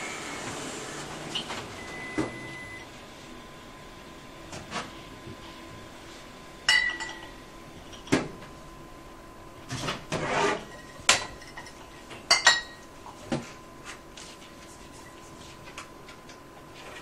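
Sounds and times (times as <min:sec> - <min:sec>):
glass bottles clinking: 0:06.7 - 0:07.3.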